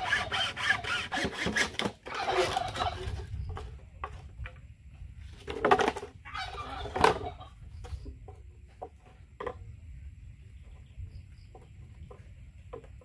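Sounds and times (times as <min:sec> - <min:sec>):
chickens clucking: 0:02.1 - 0:04.1, 0:06.1 - 0:09.0.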